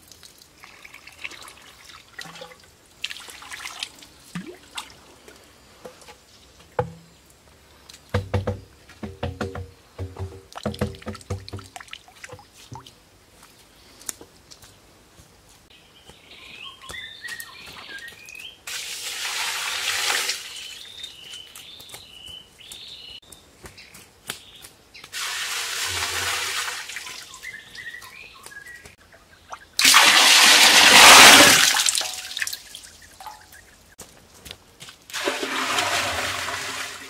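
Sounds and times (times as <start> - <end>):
water pouring and splashing: 0.0 - 5.4, 10.5 - 13.0, 18.6 - 20.9, 25.1 - 27.6, 29.8 - 33.6, 35.1 - 37.0
birds chirping: 15.7 - 18.6, 27.0 - 29.8, 32.6 - 34.0.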